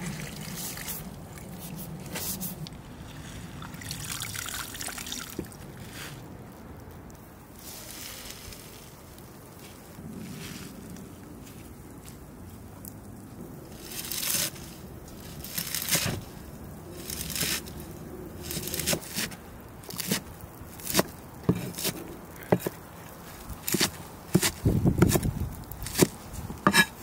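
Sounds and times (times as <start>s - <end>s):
leaves rustling and crunching: 0.0s - 27.0s
cleaver chopping on wooden board: 20.8s - 22.8s, 23.6s - 27.0s.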